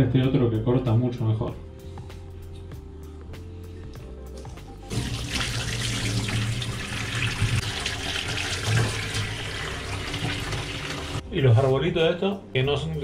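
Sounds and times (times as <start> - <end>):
tap running into metal sink: 4.9 - 11.2.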